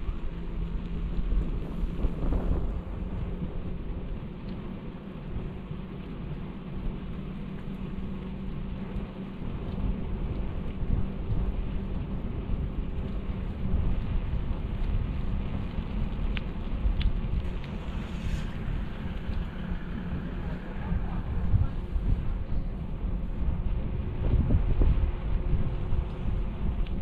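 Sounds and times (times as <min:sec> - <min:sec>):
wind buffeting microphone: 0:00.0 - 0:27.0
faint clicks: 0:14.8 - 0:20.6.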